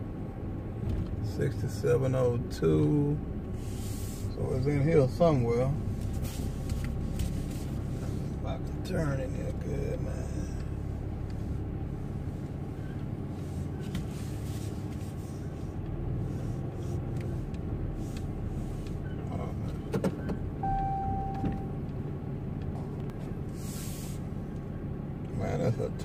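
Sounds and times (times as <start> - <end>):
truck engine running: 0.0 - 26.0
short beep: 20.6 - 21.8.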